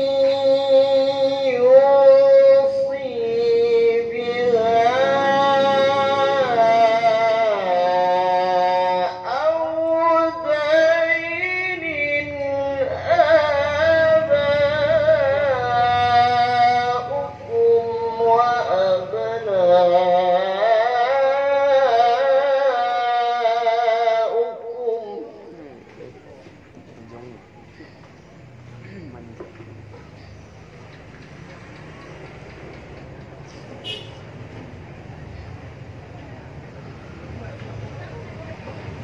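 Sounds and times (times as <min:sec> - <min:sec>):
man reciting melodically: 0:00.0 - 0:27.5
breaths: 0:27.7 - 0:28.2.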